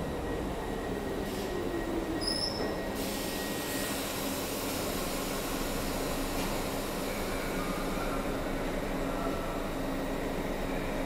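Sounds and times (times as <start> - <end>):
subway train hum and hiss: 0.0 - 11.0
high brake squeal: 2.2 - 4.1.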